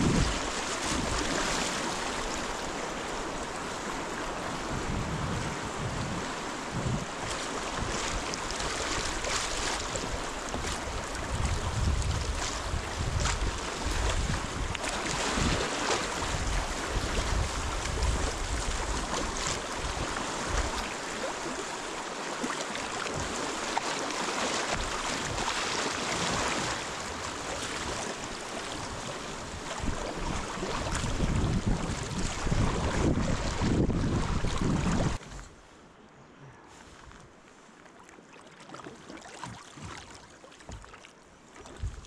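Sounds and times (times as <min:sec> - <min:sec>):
wind rumbling on microphone: 0:00.0 - 0:21.7, 0:24.7 - 0:35.6, 0:41.7 - 0:42.0
river water rushing and splashing: 0:00.0 - 0:36.0.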